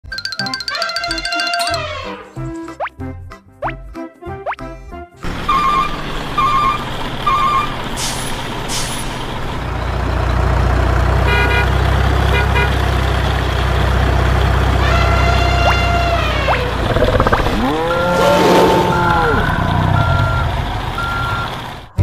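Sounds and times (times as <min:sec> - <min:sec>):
diesel engine rumbling: 0:05.2 - 0:22.0
reversing alarm beeping: 0:05.5 - 0:07.8, 0:16.7 - 0:22.0
air brakes hissing: 0:07.9 - 0:09.4
truck horn honks: 0:11.2 - 0:12.9, 0:14.6 - 0:16.8, 0:17.5 - 0:20.2.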